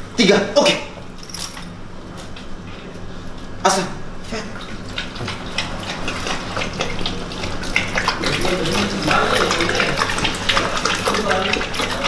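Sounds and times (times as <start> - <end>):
dog lapping from a bowl: 4.2 - 12.0.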